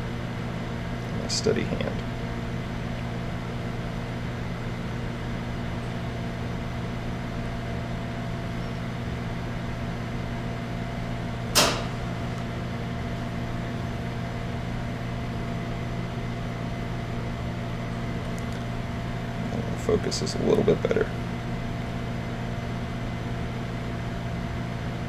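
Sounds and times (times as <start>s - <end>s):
low background hum: 0.0s - 25.0s
sharp click: 11.5s - 12.0s.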